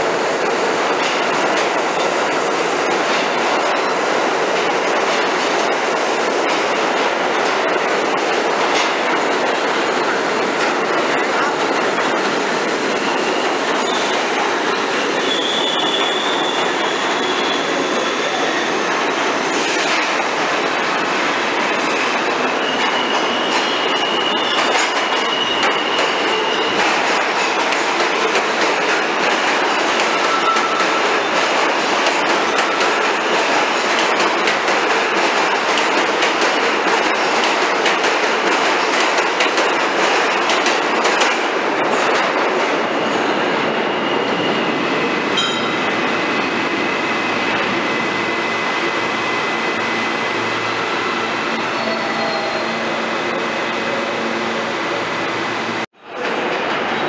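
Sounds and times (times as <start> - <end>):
subway train rumble: 0.0 - 57.0
steel wheels squealing: 13.0 - 14.2, 15.2 - 18.9, 21.9 - 26.8.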